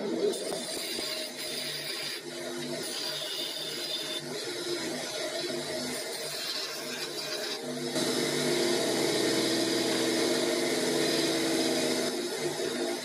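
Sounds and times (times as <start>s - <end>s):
bench grinder motor hum: 0.0s - 13.0s
tool bit grinding on wheel: 0.1s - 7.7s.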